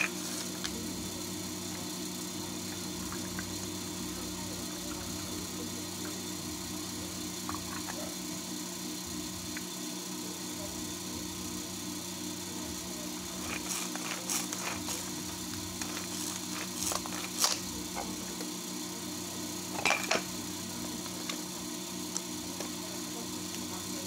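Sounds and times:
steady background hum: 0:00.0 - 0:24.0
plastic packaging crackling: 0:13.4 - 0:17.7.

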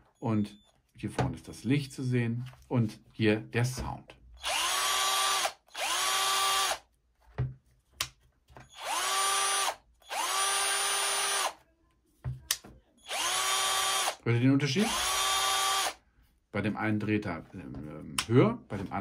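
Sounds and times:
cordless drill motor whining: 0:04.4 - 0:06.8, 0:08.6 - 0:11.6, 0:13.0 - 0:14.2, 0:14.8 - 0:16.0.

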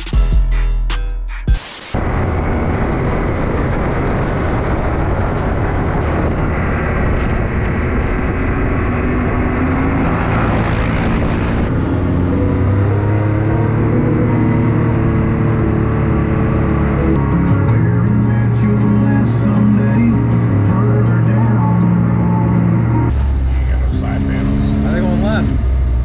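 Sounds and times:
wind rushing: 0:02.0 - 0:12.8
engine droning at cruise: 0:02.0 - 0:26.0.

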